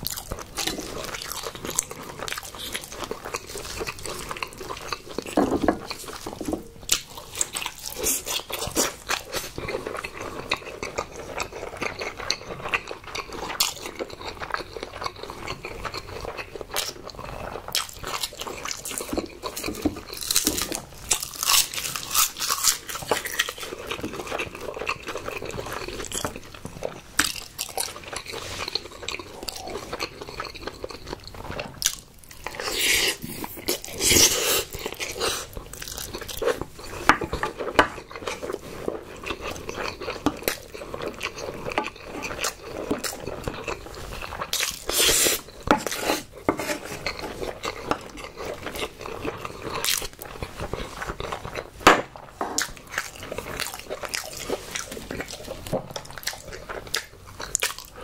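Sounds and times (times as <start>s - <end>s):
wet chewing and smacking: 0.0s - 58.0s
wooden spoon scraping glass dish: 45.7s - 47.0s.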